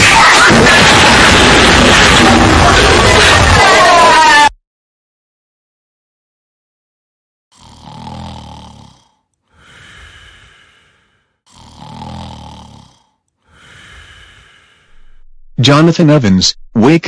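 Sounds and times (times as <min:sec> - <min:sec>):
person snoring: 0:07.5 - 0:15.3.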